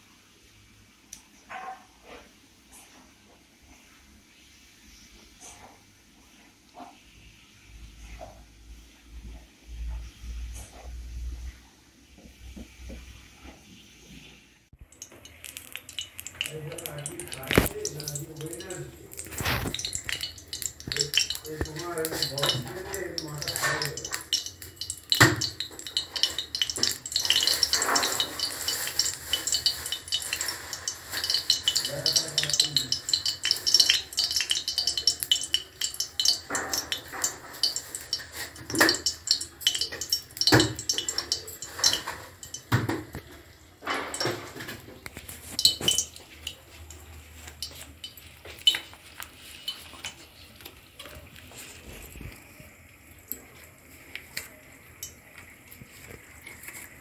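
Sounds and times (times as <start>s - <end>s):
metal cookware clattering: 14.9s - 46.9s.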